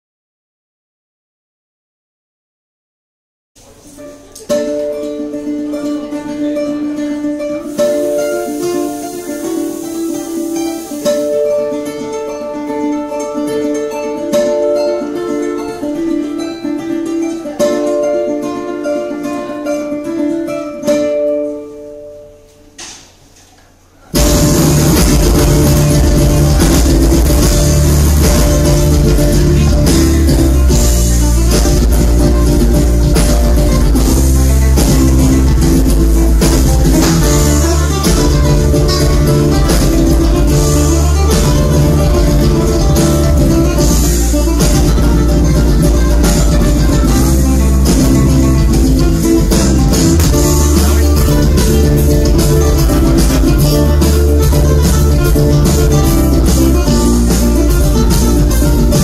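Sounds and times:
plucked cuatro melody: 3.6s - 22.7s, 24.2s - 59.0s
sharp strummed chords: 3.6s - 23.2s, 24.1s - 59.0s
deep bass: 24.2s - 59.0s.

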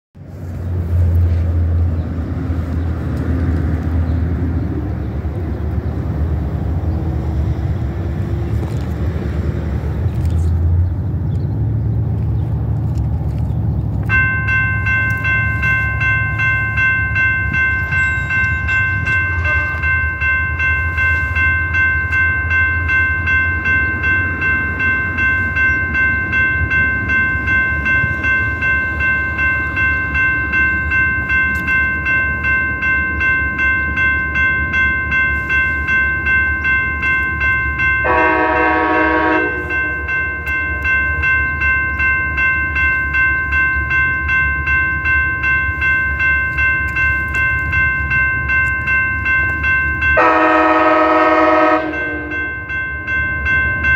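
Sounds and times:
crossing bell ringing: 14.0s - 53.9s.

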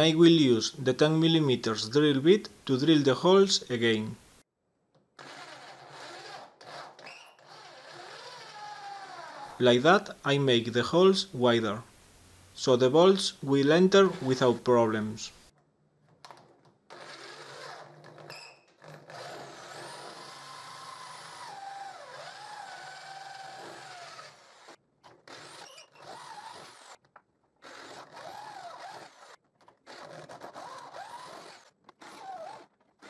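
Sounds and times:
electric drill boring wood: 5.2s - 9.6s, 16.9s - 27.0s, 27.6s - 32.7s.

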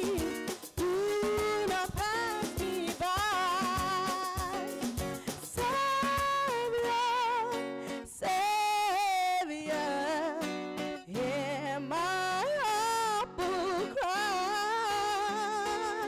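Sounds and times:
guitar accompaniment: 0.0s - 16.0s
person singing with vibrato: 0.0s - 16.0s.

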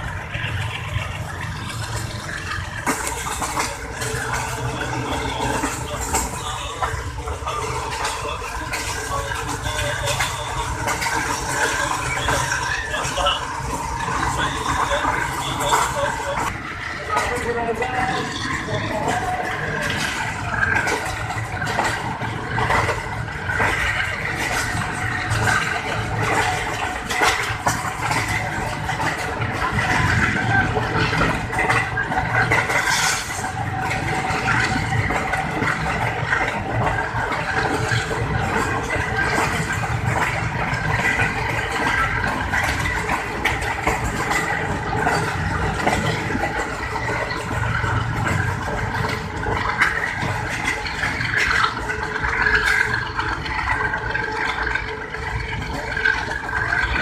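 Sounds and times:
train wheels rumbling on rail: 0.0s - 57.0s
wheels knocking over rail joints: 0.0s - 57.0s
wind: 0.0s - 57.0s.

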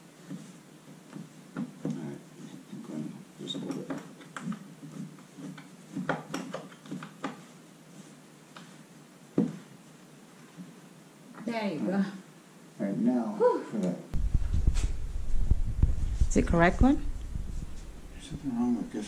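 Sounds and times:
knocks taps and rubbing of parts: 0.2s - 2.7s, 3.5s - 7.6s.

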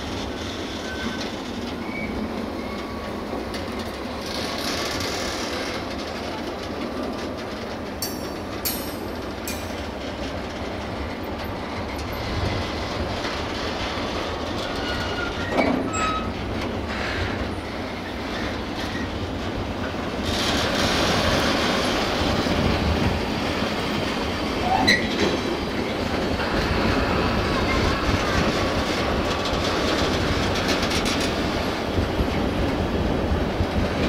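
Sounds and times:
train wheel squeals: 0.0s - 5.9s, 11.0s - 19.2s, 24.6s - 26.1s, 26.9s - 31.4s
freight train wheels clattering: 0.0s - 34.0s.

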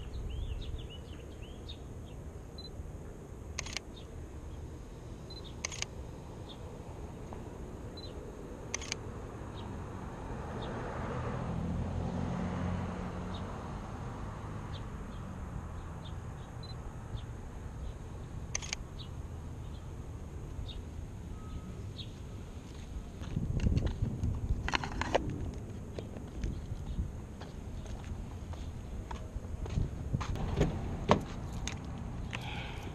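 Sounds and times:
birds chirping: 0.0s - 2.7s, 3.6s - 6.8s, 20.6s - 22.4s, 31.4s - 32.9s
camera shutter clicking: 3.6s - 3.9s, 5.6s - 5.9s, 8.7s - 9.0s, 18.6s - 18.8s
car passing: 3.6s - 23.2s, 25.1s - 32.9s.

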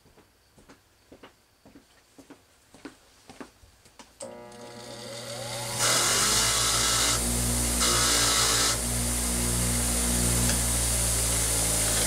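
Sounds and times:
wire wheel rasping on metal: 4.2s - 8.8s
bench grinder motor whine: 4.2s - 12.0s.

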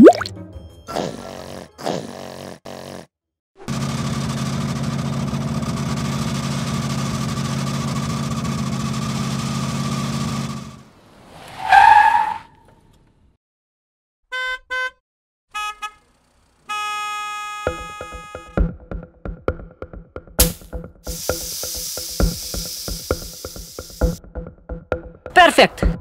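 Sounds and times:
vehicle engine running: 3.6s - 11.0s, 20.5s - 24.2s
held horn-like tone: 14.3s - 18.6s
horn-like beeps: 16.7s - 18.6s.

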